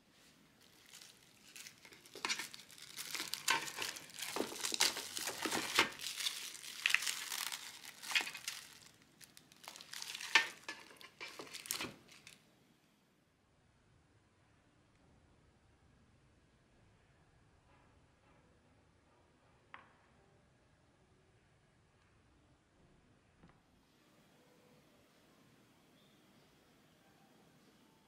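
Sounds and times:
plastic film crinkling: 0:00.5 - 0:12.4.

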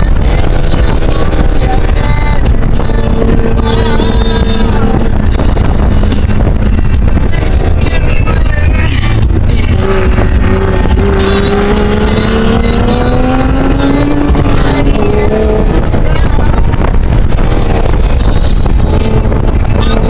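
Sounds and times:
car engine accelerating: 0:00.0 - 0:20.0
road and wind noise: 0:00.0 - 0:20.0.

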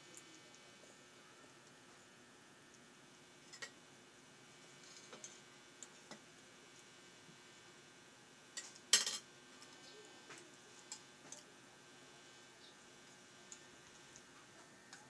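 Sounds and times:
cutlery clinking on plates: 0:08.6 - 0:09.2
cutlery clatter: 0:08.6 - 0:09.3.

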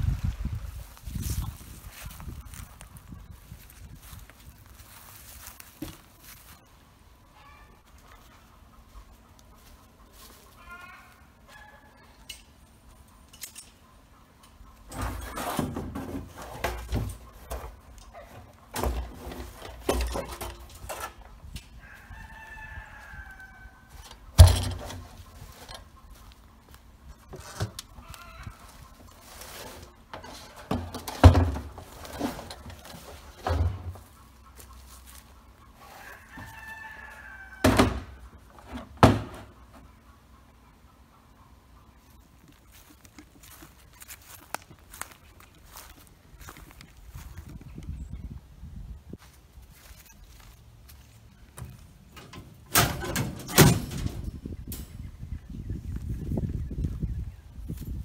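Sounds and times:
rooster crowing: 0:21.8 - 0:24.1, 0:35.8 - 0:38.2
plastic barrel knocks and thumps: 0:37.6 - 0:39.6.

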